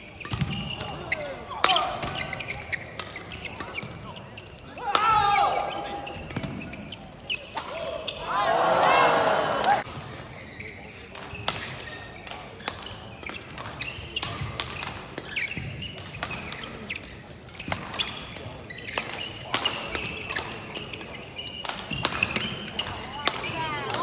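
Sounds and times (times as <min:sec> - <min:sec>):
shoes squeaking on court: 0:00.0 - 0:04.7, 0:05.6 - 0:08.3, 0:10.0 - 0:24.0.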